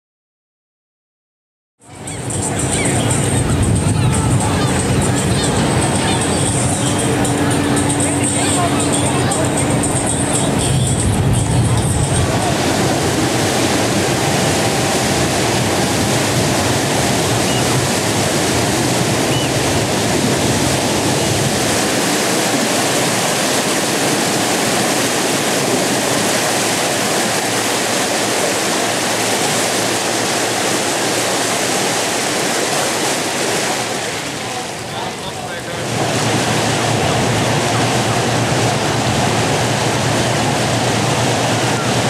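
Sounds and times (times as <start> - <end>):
rushing water: 1.8 - 42.0
low rumble: 2.4 - 32.2.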